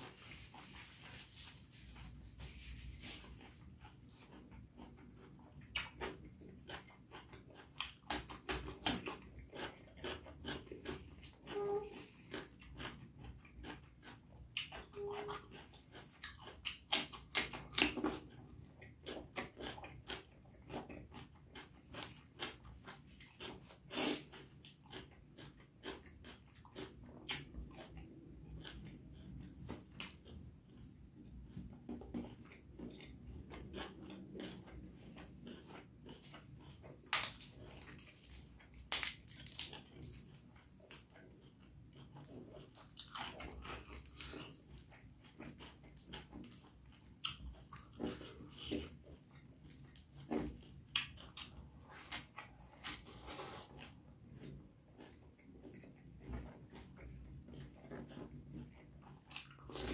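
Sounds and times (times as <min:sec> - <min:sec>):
person chewing food: 0:00.0 - 0:59.9.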